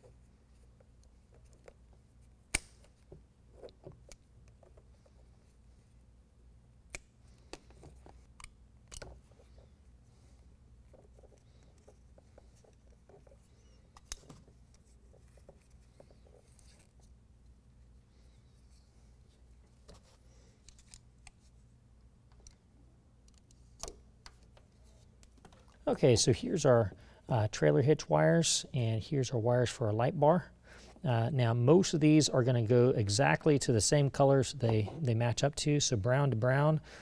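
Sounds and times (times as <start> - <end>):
rustle of wiring handled: 7.2 - 17.2.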